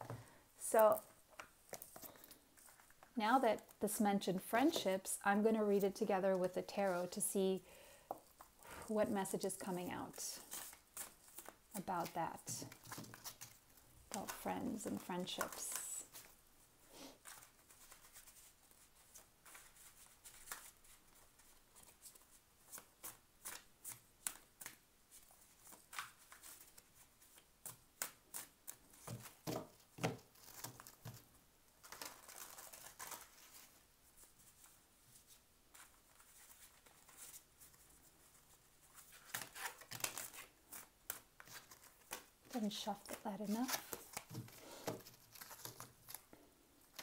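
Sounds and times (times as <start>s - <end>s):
cards being shuffled: 10.4s - 16.3s, 17.3s - 31.2s, 31.8s - 46.3s.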